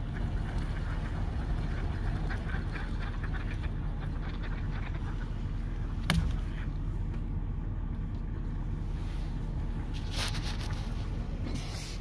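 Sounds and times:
car engine idling: 0:00.0 - 0:12.0
short hissing rustles: 0:08.9 - 0:12.0.

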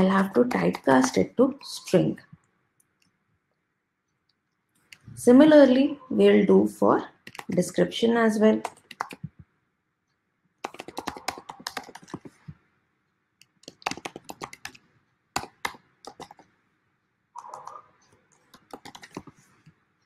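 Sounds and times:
typing on computer keyboard: 0:00.2 - 0:01.3, 0:07.2 - 0:07.6, 0:08.6 - 0:09.4, 0:10.6 - 0:12.5, 0:13.4 - 0:16.5, 0:17.4 - 0:17.8, 0:18.4 - 0:19.4.

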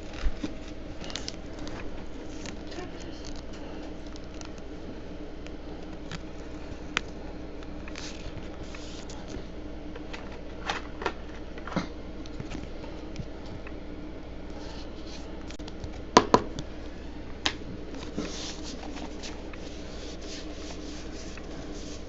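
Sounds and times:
card rustling: 0:00.0 - 0:11.4, 0:17.5 - 0:22.0
low background hum: 0:00.0 - 0:22.0.

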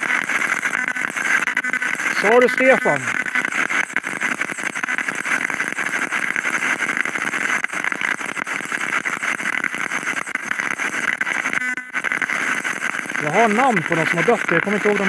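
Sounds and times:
radio static sweeping: 0:00.0 - 0:15.0.

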